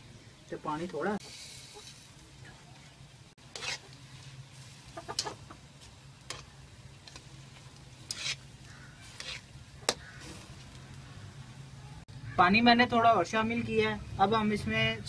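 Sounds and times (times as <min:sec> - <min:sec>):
gas burner hum: 0:00.6 - 0:11.8
spatula scraping iron pan: 0:03.5 - 0:04.0, 0:08.0 - 0:10.4.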